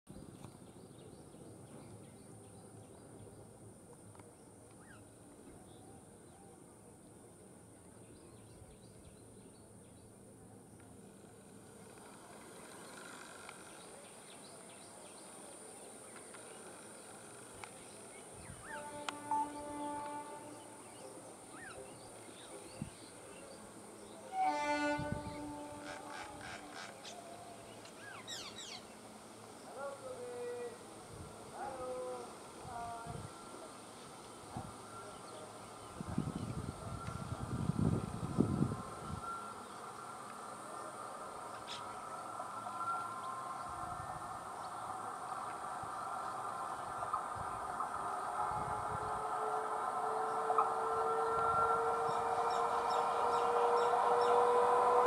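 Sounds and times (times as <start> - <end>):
train horn blast: 18.4 - 21.8, 24.1 - 27.2, 47.4 - 55.0.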